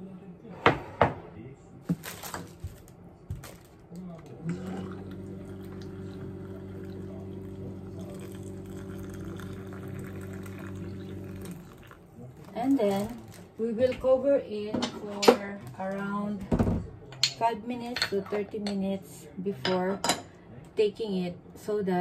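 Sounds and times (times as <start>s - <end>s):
pump humming: 4.4s - 12.0s
water pouring into mug: 4.4s - 13.3s.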